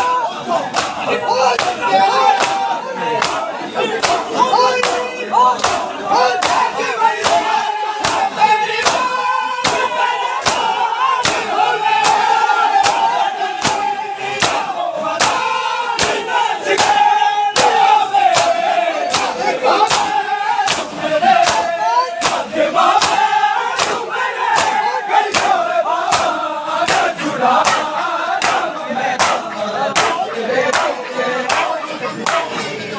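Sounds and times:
men chanting: 0:00.0 - 0:32.9
hands slapping bare chests: 0:00.7 - 0:01.0, 0:01.6 - 0:02.6, 0:03.2 - 0:03.4, 0:04.8 - 0:05.0, 0:05.6 - 0:10.6, 0:11.2 - 0:14.6, 0:15.2 - 0:15.4, 0:17.6 - 0:32.5.

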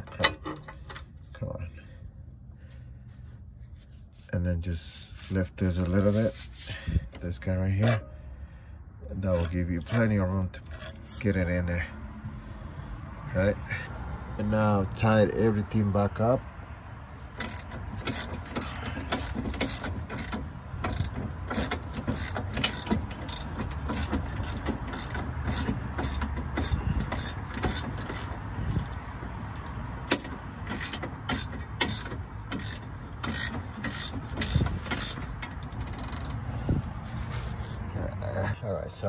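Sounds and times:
socket ratchet clicking: 0:17.4 - 0:29.0, 0:29.6 - 0:36.4.

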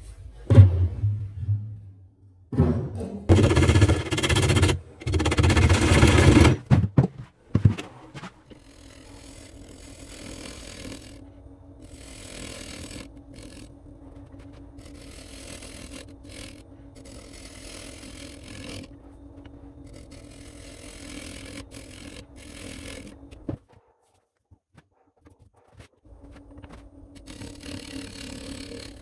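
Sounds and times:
wood lathe motor hum: 0:03.3 - 0:06.6, 0:08.2 - 0:23.5, 0:26.3 - 0:29.0
turning tool cutting wood: 0:03.3 - 0:06.7, 0:07.6 - 0:23.5, 0:27.1 - 0:29.0.

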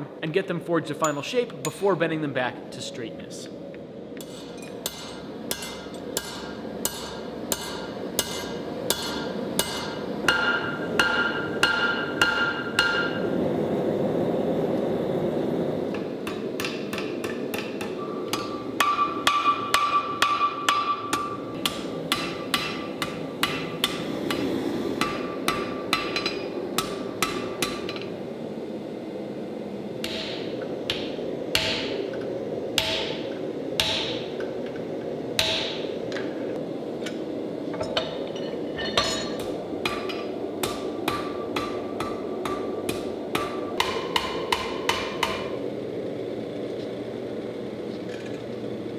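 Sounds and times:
hammer striking steel on anvil: 0:04.2 - 0:13.3, 0:16.2 - 0:24.4, 0:25.0 - 0:28.1, 0:30.0 - 0:32.0, 0:32.8 - 0:34.4, 0:35.4 - 0:35.9, 0:37.8 - 0:45.6.

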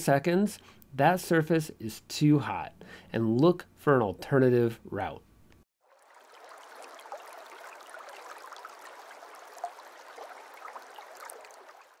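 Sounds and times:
stream babbling over rocks: 0:05.9 - 0:12.0.

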